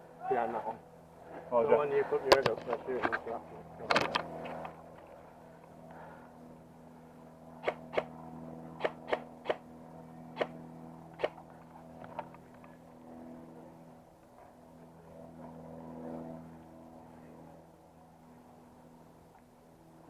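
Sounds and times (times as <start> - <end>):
steady low hum: 0.0 - 20.0
airsoft gun shots: 7.6 - 8.1, 8.8 - 9.6.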